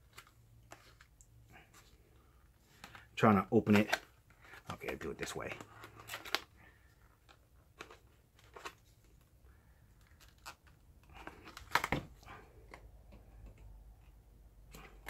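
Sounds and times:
plastic cracking: 0:02.7 - 0:13.7.

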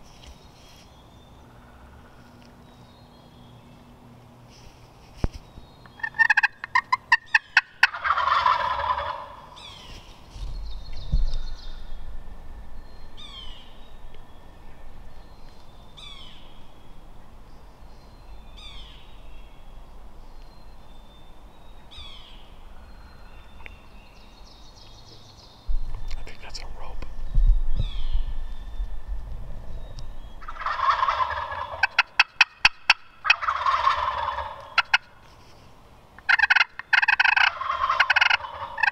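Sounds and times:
turkey gobbling: 0:06.0 - 0:09.8, 0:30.4 - 0:35.1, 0:36.2 - 0:38.9
turkey yelping: 0:06.0 - 0:09.8, 0:30.4 - 0:35.1, 0:36.2 - 0:38.9.

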